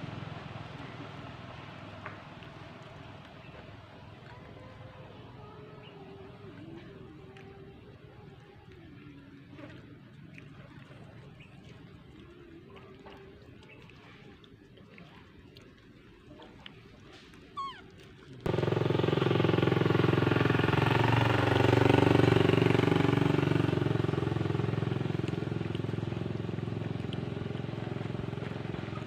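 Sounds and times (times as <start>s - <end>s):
vehicle engine running: 0.0s - 6.9s, 18.5s - 29.0s
brief high squeak: 17.6s - 17.8s.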